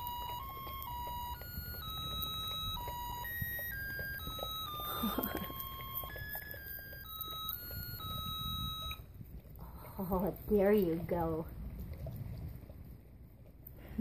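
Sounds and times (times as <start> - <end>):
electronic beeping tune: 0.0 - 9.0.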